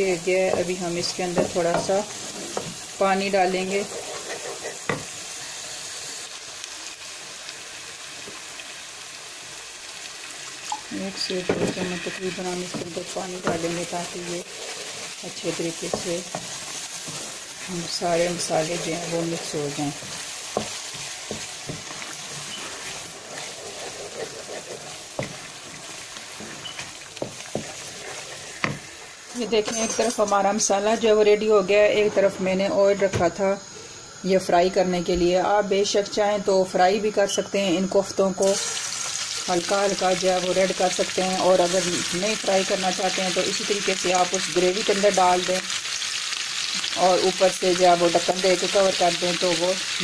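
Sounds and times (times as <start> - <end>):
curry sizzling in oil: 0.0 - 50.0
wooden spoon knocking pan: 0.4 - 2.0, 19.6 - 22.5
wooden spatula stirring: 1.4 - 5.1, 11.5 - 28.9
spatula knocking on pan: 20.0 - 22.0.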